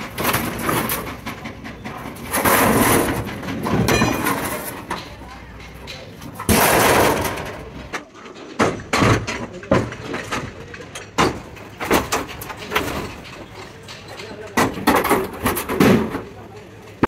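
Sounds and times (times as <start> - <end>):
steel sheet crashing onto wood: 0.0 - 5.2, 6.3 - 10.4
metal bangs and knocks: 0.0 - 17.0.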